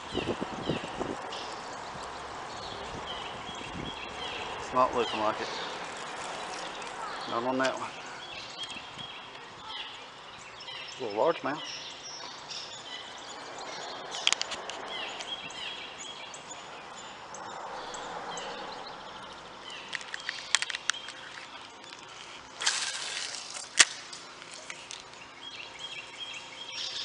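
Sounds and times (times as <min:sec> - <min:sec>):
birds chirping faintly: 0:00.0 - 0:27.0
scattered clicks: 0:19.9 - 0:22.1.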